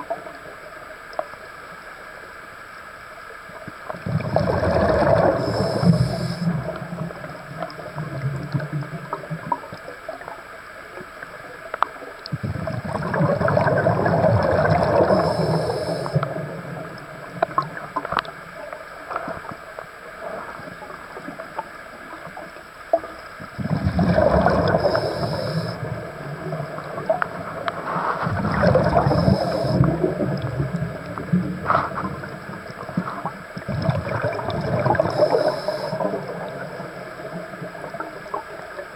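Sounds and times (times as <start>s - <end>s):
bubbles gurgling: 4.0s - 9.8s, 12.3s - 18.6s, 23.4s - 38.9s
diver breathing through regulator: 4.6s - 6.8s, 14.3s - 16.4s, 23.8s - 26.0s, 27.7s - 30.4s, 34.7s - 36.3s.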